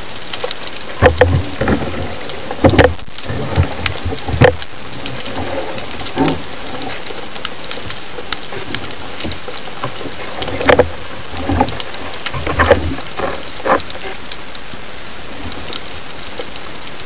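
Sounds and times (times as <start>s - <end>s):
knocks and thuds: 2.6s - 4.6s.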